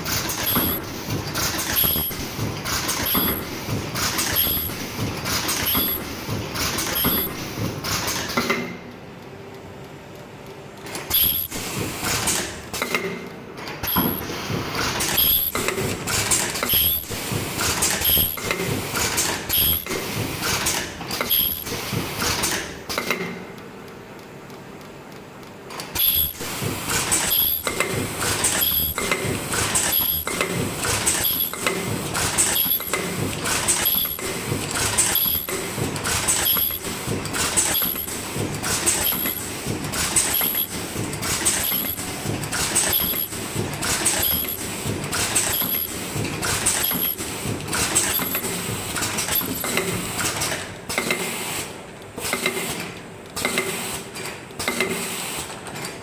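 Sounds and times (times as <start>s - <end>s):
machine clacking rhythmically: 0.0s - 8.6s, 13.8s - 50.6s.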